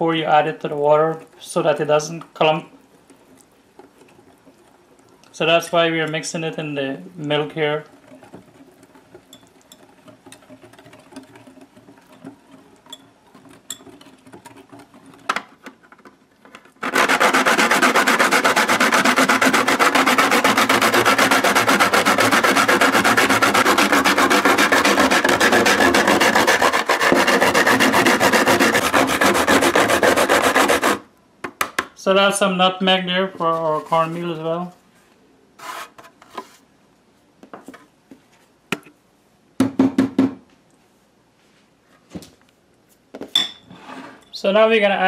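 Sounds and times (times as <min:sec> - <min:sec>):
whisk clinking in glass bowl: 0:09.1 - 0:15.1
nutmeg grated on metal grater: 0:16.8 - 0:31.0.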